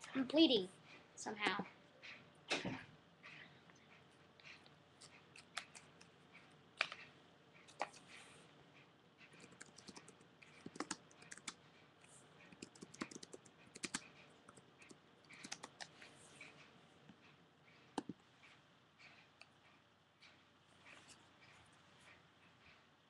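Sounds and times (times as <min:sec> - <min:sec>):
typing on computer keyboard: 0:09.4 - 0:11.6, 0:12.5 - 0:15.9.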